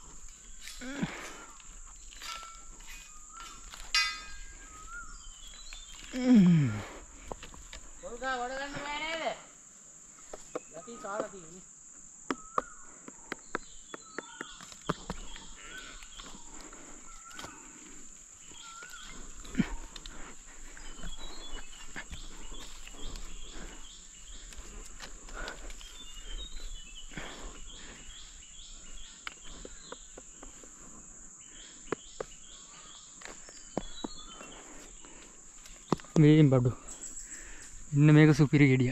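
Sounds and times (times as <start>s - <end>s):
bird chirps: 0.0s - 6.4s, 12.2s - 38.9s
insects droning: 0.0s - 38.9s.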